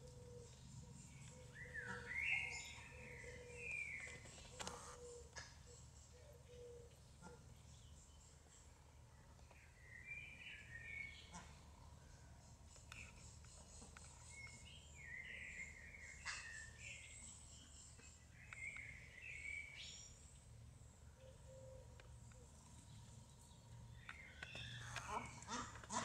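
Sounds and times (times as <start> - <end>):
distant birds chirping: 0.0 - 7.0, 12.2 - 26.0.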